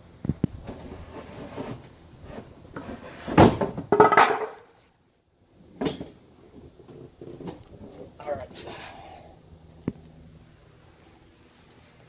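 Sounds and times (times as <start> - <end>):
plastic bucket clunking and scraping: 0.6 - 4.7
rustling: 10.8 - 12.0.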